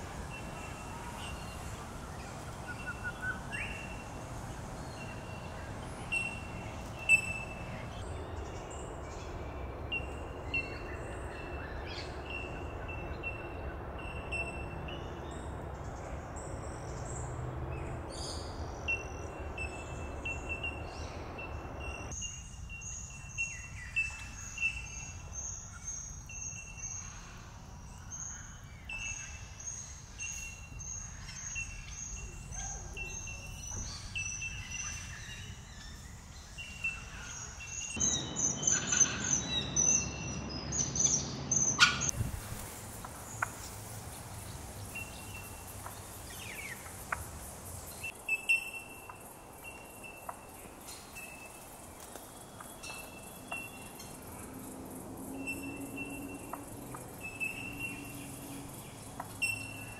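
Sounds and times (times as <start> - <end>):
steady background hiss: 0.0 - 17.5, 42.0 - 59.9
other bird calls: 41.0 - 42.2.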